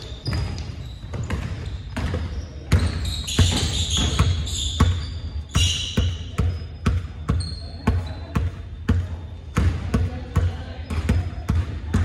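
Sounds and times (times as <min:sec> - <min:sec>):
basketballs bouncing on wooden floor: 0:00.0 - 0:12.0
sneakers squeaking on court: 0:00.0 - 0:12.0.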